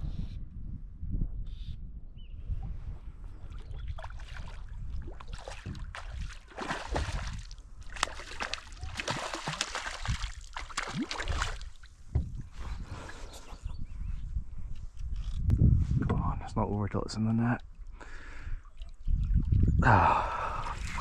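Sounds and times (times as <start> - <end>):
water splashing and sloshing: 3.4 - 13.4, 17.7 - 19.7, 20.4 - 21.0.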